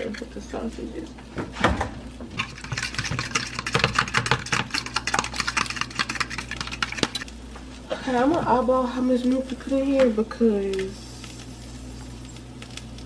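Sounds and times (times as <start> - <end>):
spoon beating eggs in bowl: 2.3 - 7.2.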